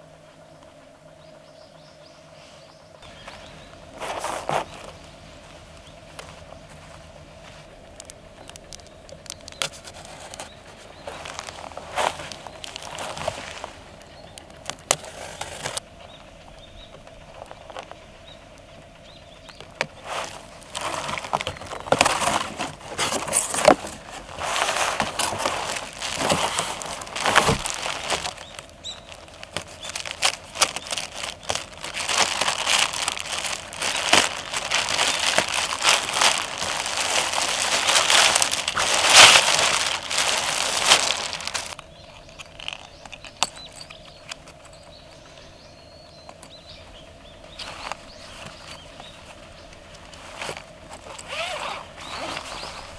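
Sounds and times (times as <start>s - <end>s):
cardboard rustling and scraping: 3.0s - 15.8s, 19.7s - 44.7s, 47.5s - 52.9s
plastic wrap crinkling: 7.6s - 15.8s, 19.8s - 44.7s
sharp clicks: 8.0s - 10.5s.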